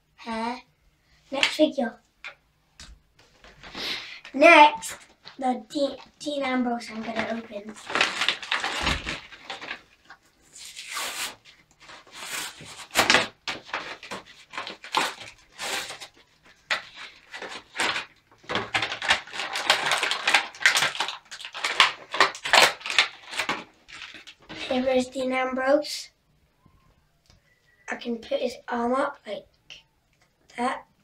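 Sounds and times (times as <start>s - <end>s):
plastic and card crackling: 3.2s - 25.1s.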